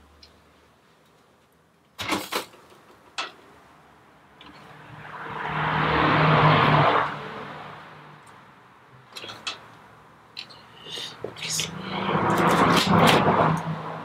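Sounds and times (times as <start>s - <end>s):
vehicle passing by: 4.5s - 8.8s, 11.0s - 14.0s.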